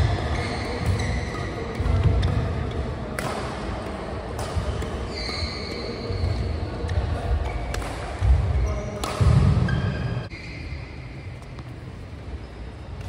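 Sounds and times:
high shoe squeak: 0:00.0 - 0:02.5, 0:04.1 - 0:11.7
racket hitting shuttlecock: 0:00.0 - 0:10.3.

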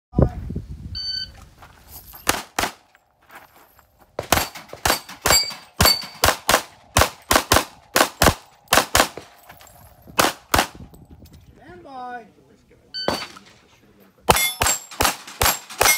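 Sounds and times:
pistol shots: 0:02.2 - 0:02.8, 0:04.2 - 0:09.4, 0:10.2 - 0:10.8, 0:14.3 - 0:15.9.

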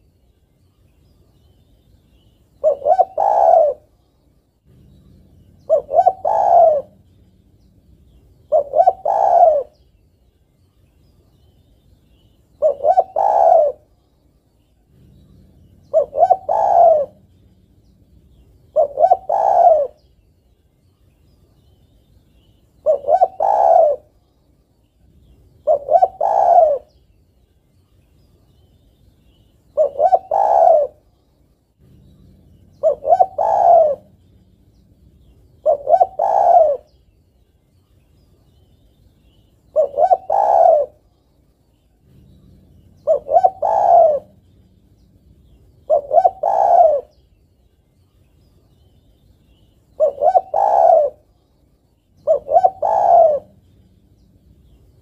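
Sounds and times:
dove cooing: 0:02.2 - 0:04.0, 0:04.6 - 0:09.9, 0:12.5 - 0:14.0, 0:14.8 - 0:20.1, 0:22.8 - 0:24.2, 0:25.2 - 0:27.0, 0:29.7 - 0:31.1, 0:31.8 - 0:37.0, 0:39.7 - 0:41.2, 0:42.0 - 0:47.3, 0:49.9 - 0:51.5, 0:52.1 - 0:55.0.

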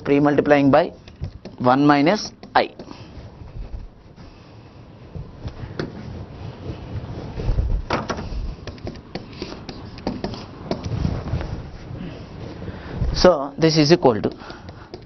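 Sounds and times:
marker pen on whiteboard: 0:00.0 - 0:04.5, 0:08.5 - 0:11.0, 0:13.7 - 0:15.0
dull low thumps: 0:07.4 - 0:08.5.

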